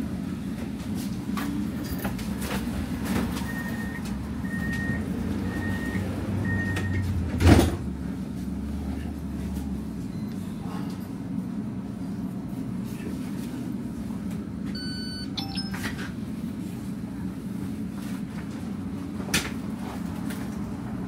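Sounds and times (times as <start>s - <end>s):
tram low rumble: 0.0s - 21.0s
high warning beeps: 14.8s - 16.1s.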